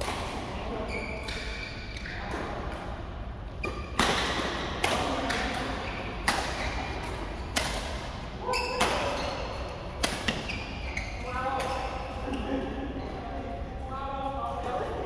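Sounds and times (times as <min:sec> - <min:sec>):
rackets hitting shuttlecock: 0:03.6 - 0:10.9.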